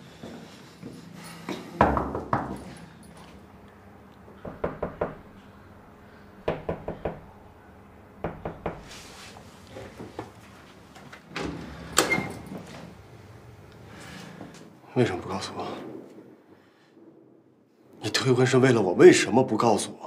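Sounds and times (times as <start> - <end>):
knuckles knocking on wooden door: 4.4 - 5.3, 6.4 - 7.3, 8.2 - 8.9.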